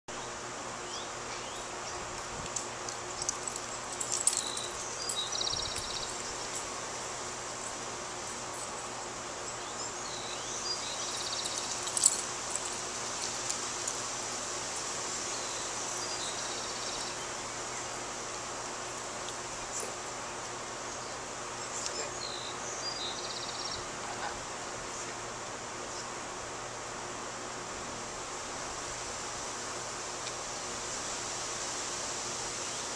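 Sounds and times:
birds chirping: 0.1 - 14.0, 15.2 - 25.2
steady high hiss: 0.1 - 32.9.

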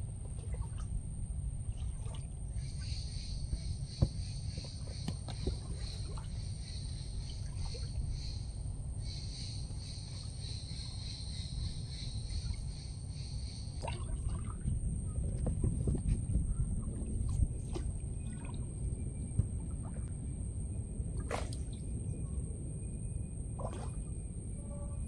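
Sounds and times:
soft water sounds from canoe: 0.0 - 25.0
high insect buzz: 24.5 - 25.0.

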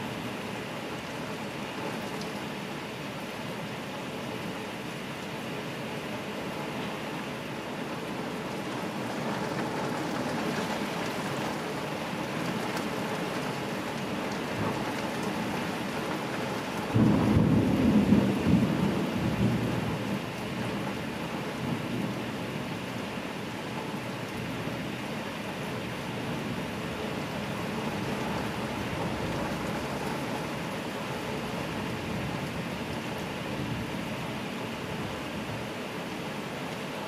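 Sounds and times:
heavy rain: 0.0 - 37.0
thunder rumble: 14.5 - 21.0, 27.6 - 30.6.

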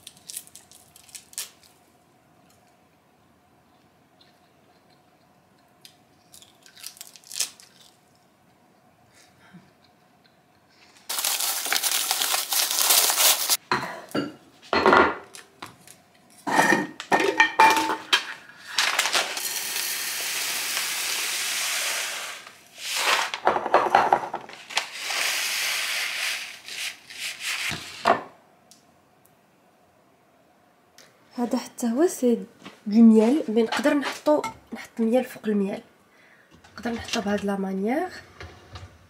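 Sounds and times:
plastic bag crinkling: 0.0 - 1.8, 6.3 - 8.0, 11.1 - 13.6, 18.6 - 19.8
jars clattering on countertop: 16.5 - 18.4, 23.4 - 24.5
dried peas pouring into glass jar: 18.8 - 22.4.

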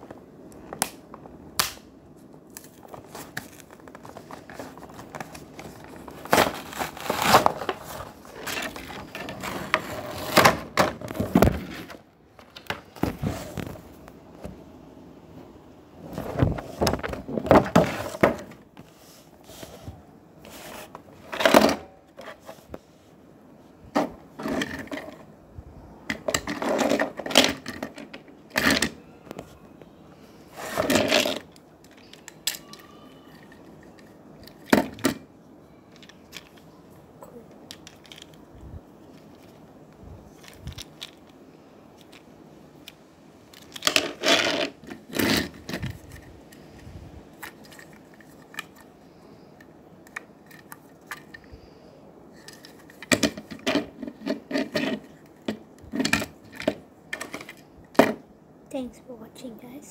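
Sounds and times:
plastic packaging crackling: 2.5 - 13.9.

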